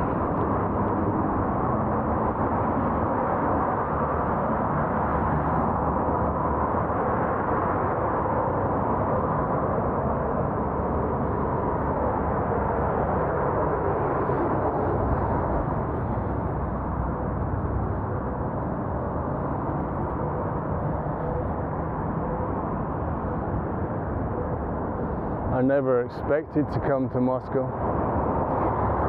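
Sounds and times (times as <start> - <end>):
bicycle road noise: 0.0 - 29.0
rushing wind: 0.0 - 29.0.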